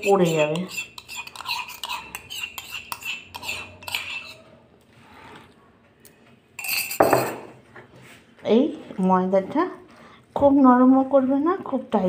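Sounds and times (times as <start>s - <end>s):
spoon clinking in ceramic mug: 0.6s - 4.4s, 6.6s - 7.4s.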